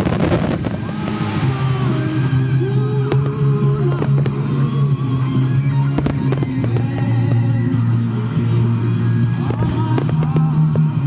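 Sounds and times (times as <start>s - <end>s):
sharp firework bangs: 0.0s - 4.4s
fireworks launching and bursting: 0.0s - 11.0s
loud music with bass note: 0.0s - 11.0s.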